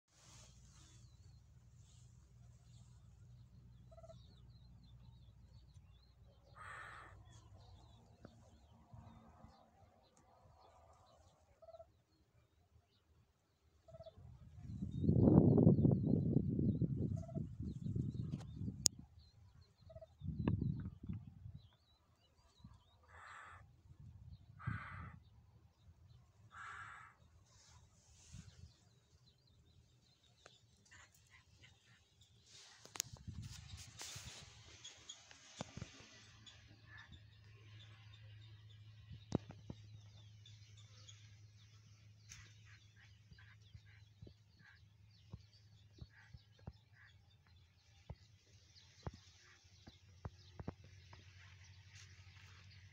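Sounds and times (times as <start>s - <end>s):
hoopoe harsh rasping call: 6.6s - 7.2s.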